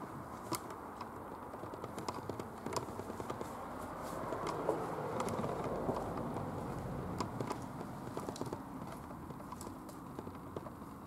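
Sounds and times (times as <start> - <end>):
footsteps on stony path: 1.8 - 11.0.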